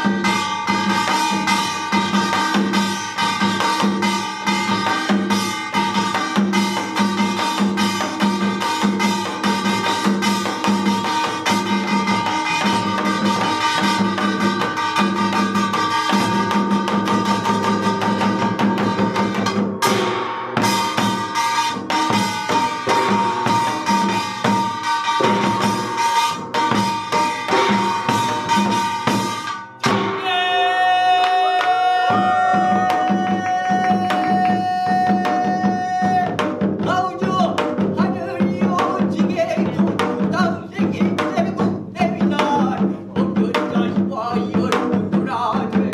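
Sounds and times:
fast drums and gongs: 0:00.0 - 0:45.9
person chanting: 0:30.1 - 0:45.9.

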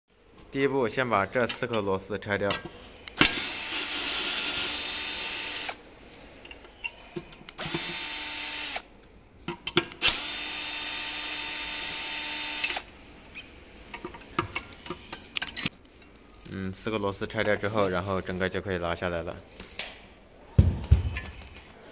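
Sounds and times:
power drill motor whine: 0:03.2 - 0:05.8, 0:07.6 - 0:08.8, 0:10.0 - 0:12.9.

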